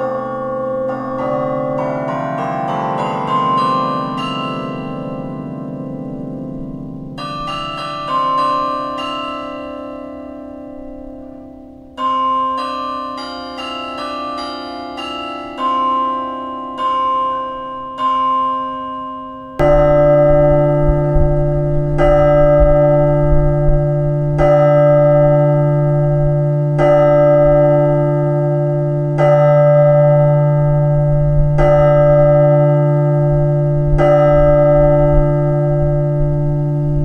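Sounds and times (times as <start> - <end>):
deep clock bell striking: 0.0 - 37.0
steady low hum: 19.6 - 29.2, 29.9 - 37.0.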